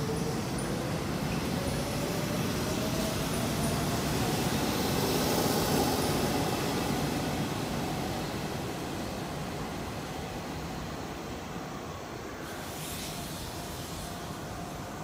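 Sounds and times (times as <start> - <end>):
train wheels rumbling on rails: 0.0 - 11.7.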